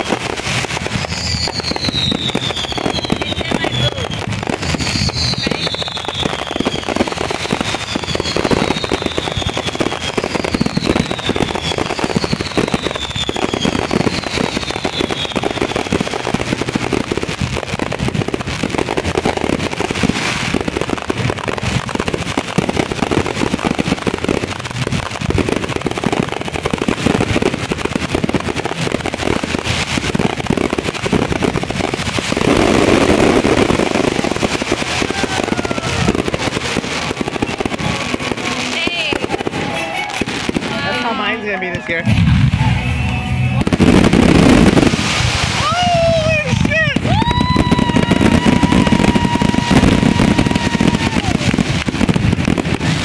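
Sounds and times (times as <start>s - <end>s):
fireworks whistles falling in pitch: 0.0s - 17.9s, 32.2s - 41.5s, 42.1s - 53.0s
fireworks bangs and crackling: 0.0s - 53.0s.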